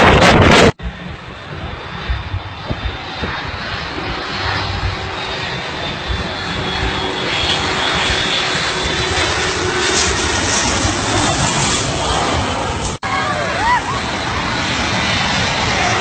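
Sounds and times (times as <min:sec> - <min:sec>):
aircraft engine drone with whine: 0:00.0 - 0:16.0.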